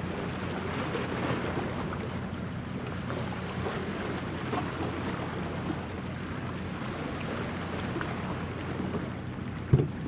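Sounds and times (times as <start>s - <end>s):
distant ship engine drone: 0.0s - 10.0s
brief thump: 9.7s - 10.0s.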